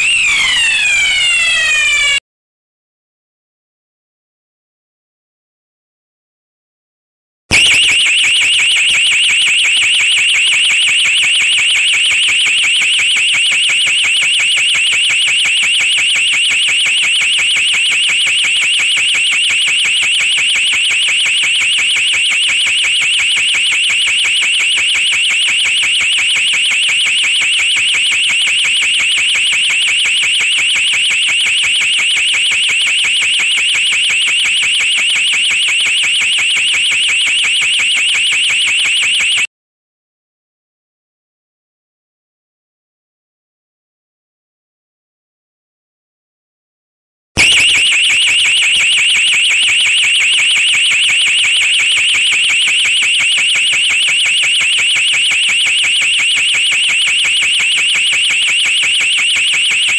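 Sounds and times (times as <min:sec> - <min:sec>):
fire alarm siren warbling: 0:00.0 - 0:02.2, 0:07.5 - 0:39.5, 0:47.4 - 0:59.9.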